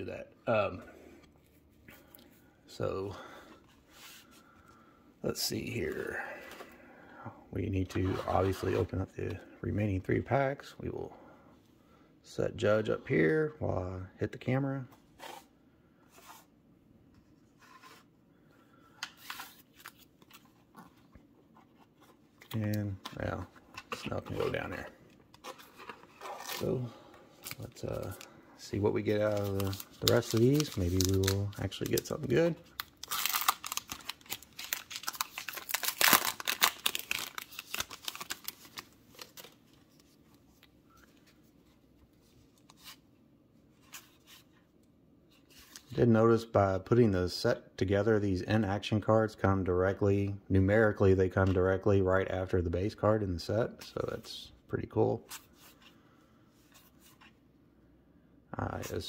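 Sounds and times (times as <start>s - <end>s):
cards in plastic holders rustling: 18.9s - 46.0s
plastic wrapper crinkling and tearing: 25.4s - 40.0s.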